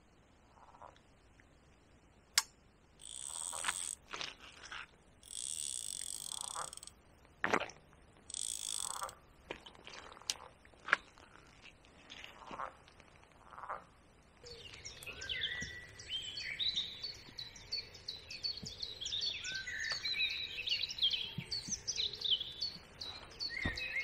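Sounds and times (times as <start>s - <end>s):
frogs croaking: 3.0s - 4.0s, 5.2s - 6.9s, 8.3s - 9.2s, 13.4s - 14.0s
sharp clicks: 5.2s - 6.9s, 8.3s - 9.2s.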